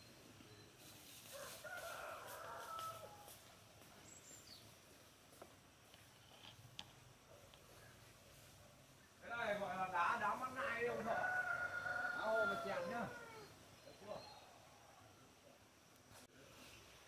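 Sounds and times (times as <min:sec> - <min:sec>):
rooster crowing: 0:01.3 - 0:03.5, 0:10.6 - 0:13.6.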